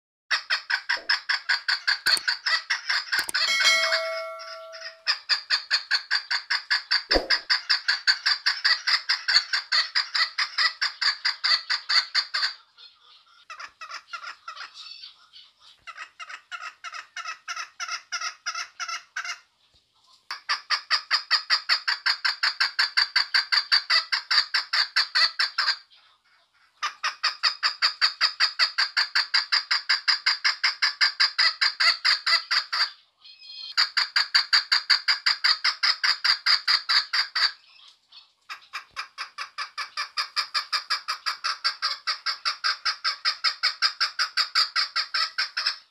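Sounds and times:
partridge calling: 0.8s - 5.2s.

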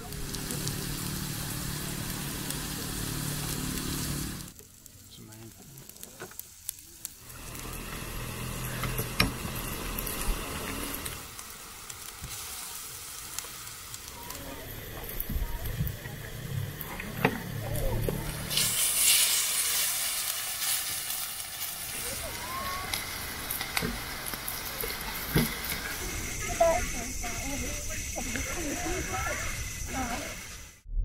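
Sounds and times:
food sizzling as it fries: 0.0s - 30.8s
voices in background: 14.0s - 18.6s, 21.9s - 30.6s.

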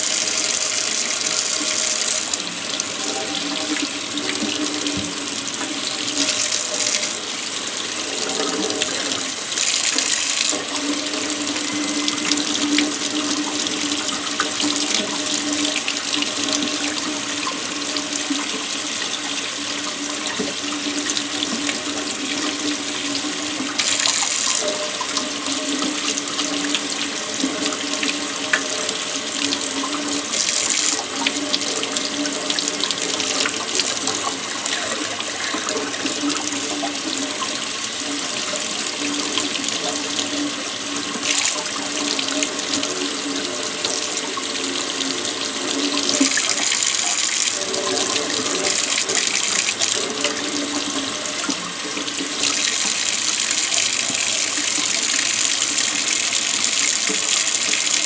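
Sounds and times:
faucet running into a metal sink: 0.0s - 58.0s.

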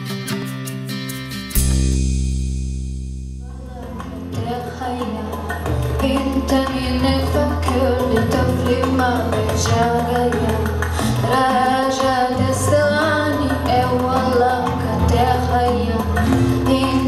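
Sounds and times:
instrumental accompaniment with bass: 0.0s - 17.0s
woman singing into microphone: 3.6s - 17.0s.

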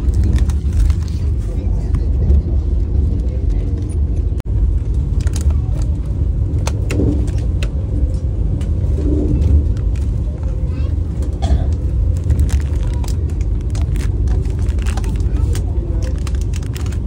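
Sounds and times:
snack packets rustling: 0.0s - 1.4s, 12.1s - 17.0s
train coach running rumble: 0.0s - 17.0s.

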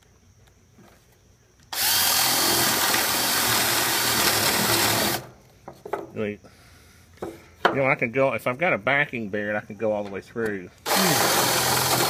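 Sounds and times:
cordless drill boring wood: 1.7s - 5.3s, 10.8s - 12.0s.

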